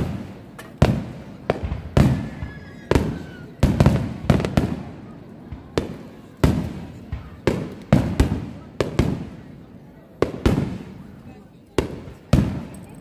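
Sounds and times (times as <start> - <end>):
fireworks booming: 0.0 - 11.2, 11.8 - 12.8.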